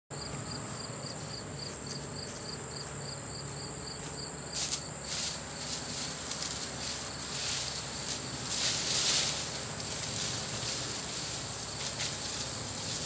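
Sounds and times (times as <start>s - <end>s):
footsteps on grass: 0.1s - 13.0s
insects chirping: 0.1s - 13.0s
dry brush rustling: 0.3s - 13.0s.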